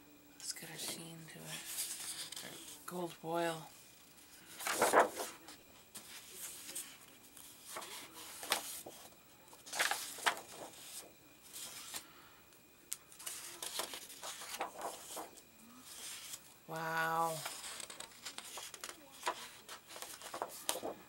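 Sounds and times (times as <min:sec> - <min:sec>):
paper sheets rustling: 0:01.5 - 0:02.8, 0:04.4 - 0:12.1, 0:13.1 - 0:16.4, 0:17.1 - 0:21.0.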